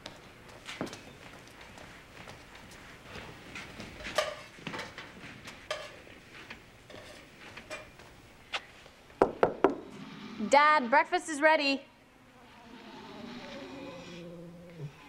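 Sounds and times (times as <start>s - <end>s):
footsteps on kitchen floor: 0.0s - 8.9s.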